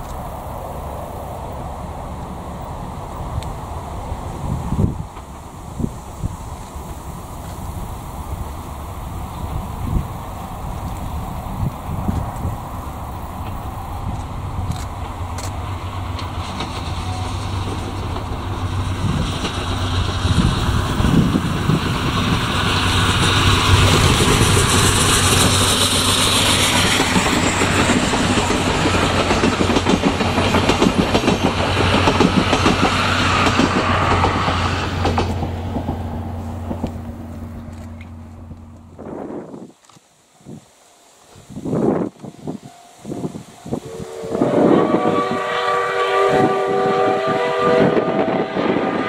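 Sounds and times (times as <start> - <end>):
train passing rumble: 0.0 - 49.0
wheels clacking over rail joints: 8.4 - 39.0.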